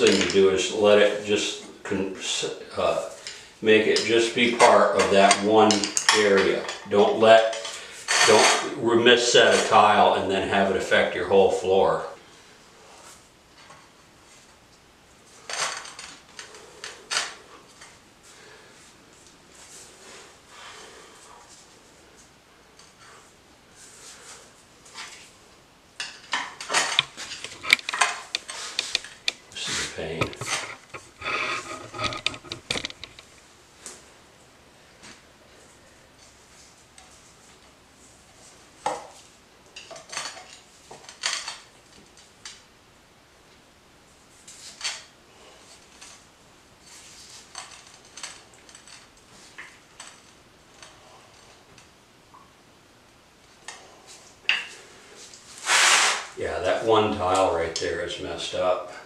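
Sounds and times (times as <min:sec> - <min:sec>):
screwdriver scraping on tile: 0:27.0 - 0:29.2, 0:30.3 - 0:33.2.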